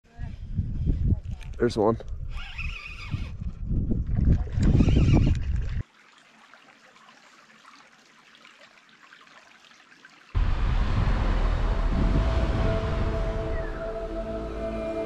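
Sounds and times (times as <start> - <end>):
creek trickling over rocks: 5.3 - 10.4
loud low rumble: 10.4 - 15.0.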